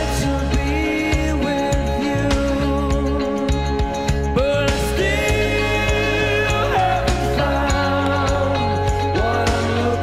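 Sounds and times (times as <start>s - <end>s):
song with drum beat and bass: 0.0s - 10.0s.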